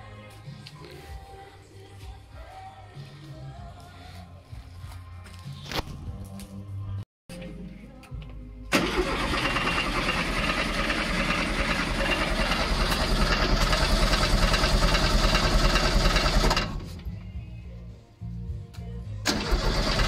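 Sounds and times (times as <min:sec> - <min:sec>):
engine turning over: 0:08.7 - 0:17.1, 0:19.2 - 0:20.0.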